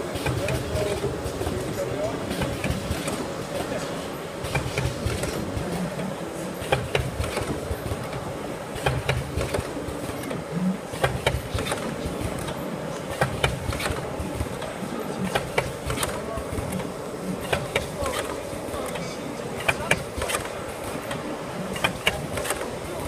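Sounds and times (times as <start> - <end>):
packing machine clattering: 0.0 - 6.0, 6.6 - 19.0, 19.6 - 23.0
sharp machine clicks: 6.6 - 8.2, 8.8 - 19.0, 19.6 - 22.9.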